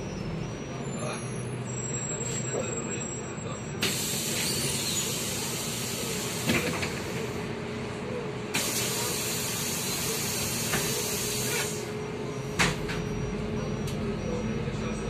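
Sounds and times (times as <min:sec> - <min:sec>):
compressed air hissing: 0:03.8 - 0:07.2, 0:08.6 - 0:11.9.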